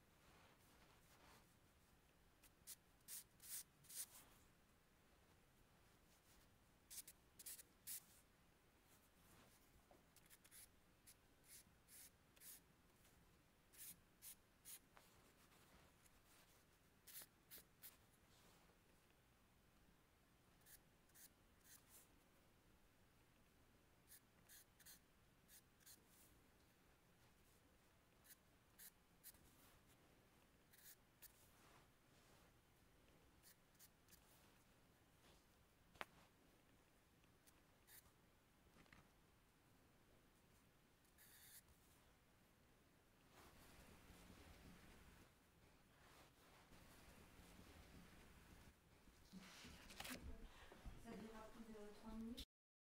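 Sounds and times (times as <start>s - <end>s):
pencil scratching on paper: 6.9s - 8.0s, 10.2s - 12.6s, 17.0s - 17.9s, 20.6s - 22.0s, 24.1s - 26.0s, 30.7s - 31.4s, 41.2s - 41.6s.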